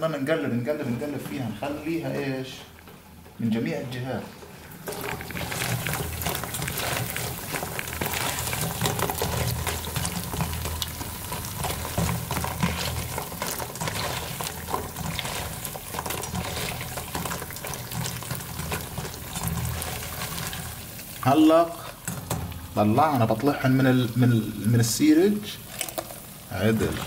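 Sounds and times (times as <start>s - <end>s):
dough deep-frying in hot oil: 3.9s - 27.0s
slotted spoon stirring in pan: 4.4s - 21.2s.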